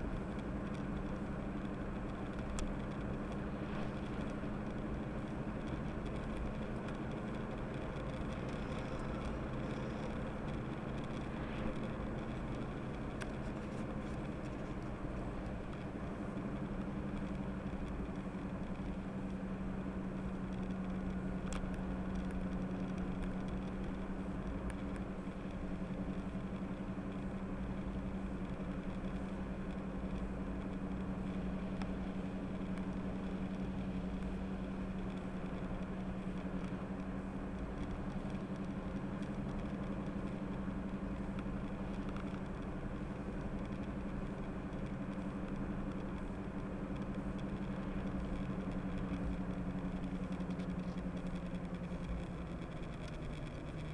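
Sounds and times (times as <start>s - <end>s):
car engine drone: 0.0s - 53.9s
road noise: 0.0s - 53.9s.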